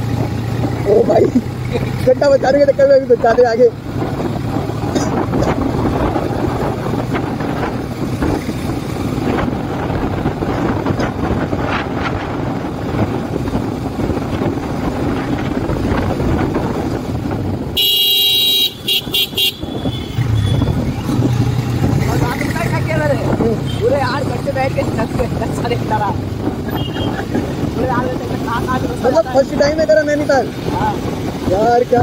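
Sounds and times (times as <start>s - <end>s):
motorcycle engine running: 0.0s - 31.9s
road rush: 0.0s - 32.0s
motorcycle horn blasts: 17.8s - 20.7s, 26.7s - 27.2s.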